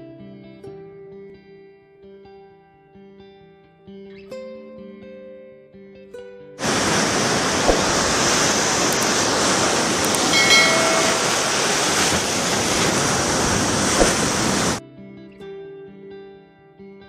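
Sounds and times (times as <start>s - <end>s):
ocean surf on beach: 6.6s - 14.8s
short high-pitched tone: 10.3s - 11.5s.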